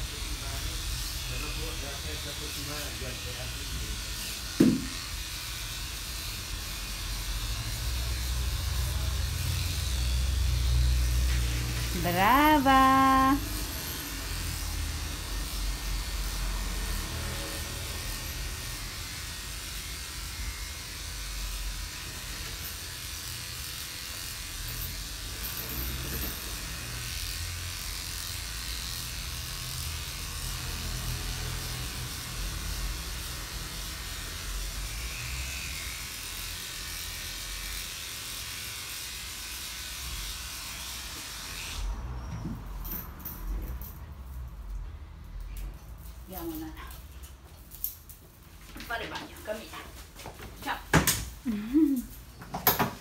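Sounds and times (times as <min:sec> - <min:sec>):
grooming machine whirring: 0:00.0 - 0:41.9.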